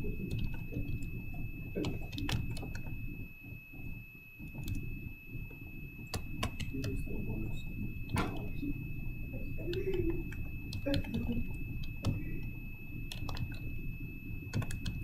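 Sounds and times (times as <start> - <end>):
faint high whine: 0.0 - 15.0
low room rumble: 0.0 - 15.0
computer keyboard key clicks: 1.8 - 2.9, 6.1 - 7.0, 9.7 - 12.2, 13.1 - 13.6, 14.5 - 15.0.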